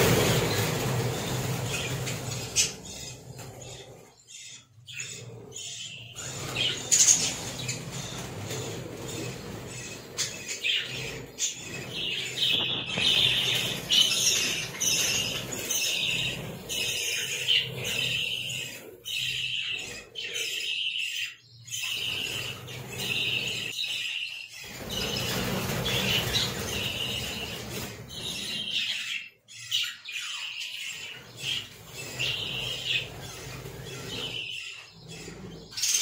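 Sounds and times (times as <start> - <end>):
flurry of wingbeats: 0.0 - 4.0, 6.1 - 19.6, 24.6 - 29.2, 31.0 - 36.0
budgerigars chirping and chattering: 0.0 - 36.0.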